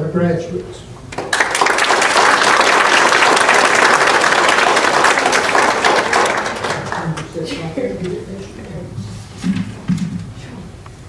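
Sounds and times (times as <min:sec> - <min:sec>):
audience applauding: 0:01.1 - 0:07.4.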